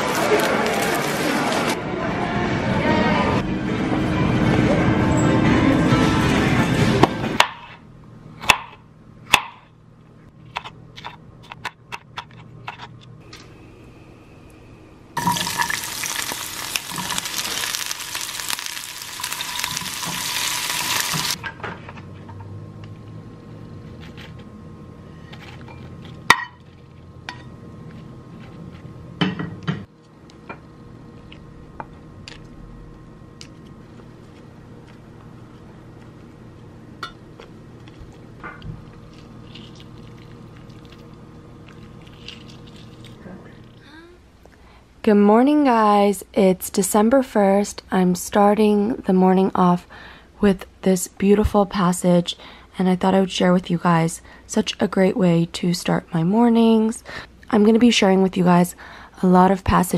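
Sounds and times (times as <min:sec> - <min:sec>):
vegetables sizzling in a frying pan: 0:15.2 - 0:21.4.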